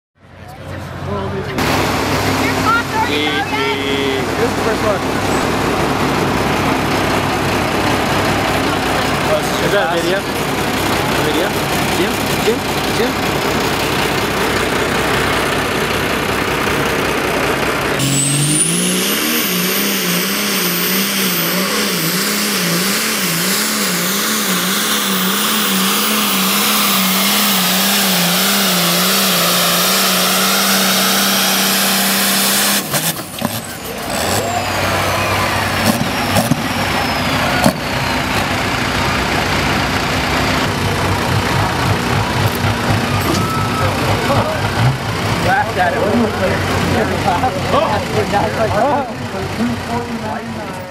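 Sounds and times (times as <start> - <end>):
diesel engine at full throttle: 0.2 - 50.9
high whine: 1.6 - 32.2.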